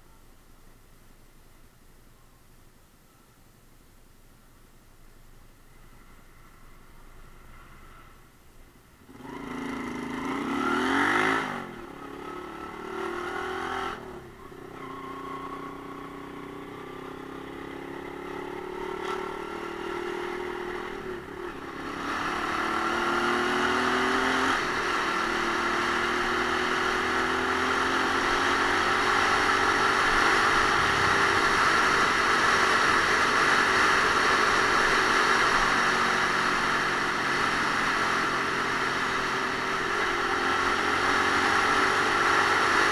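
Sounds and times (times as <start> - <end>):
motorcycle engine accelerating: 9.1 - 42.9.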